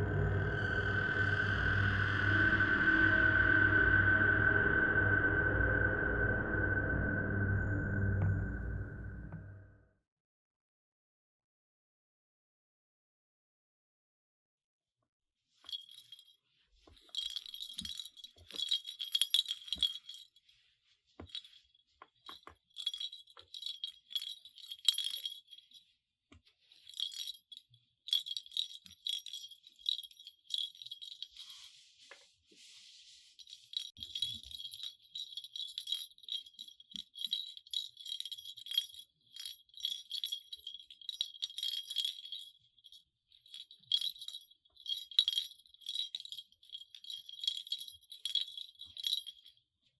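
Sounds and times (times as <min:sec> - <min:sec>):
small bell jingling: 0:15.6 - 0:31.9, 0:33.3 - 0:49.6.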